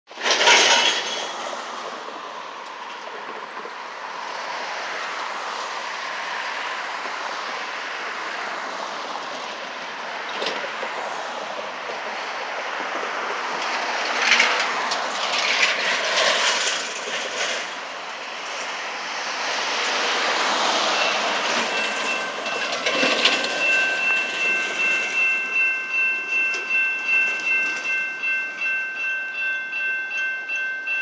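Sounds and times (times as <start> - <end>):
road traffic hiss: 0.1 - 30.0
truck clattering past: 19.6 - 30.0.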